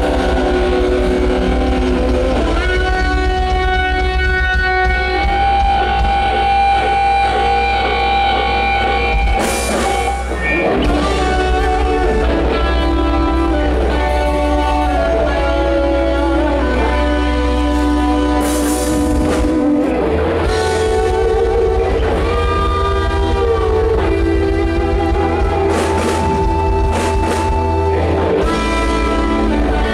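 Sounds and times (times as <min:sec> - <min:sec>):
electric guitar bending notes: 0:00.0 - 0:29.9
rock band playing: 0:00.0 - 0:29.9.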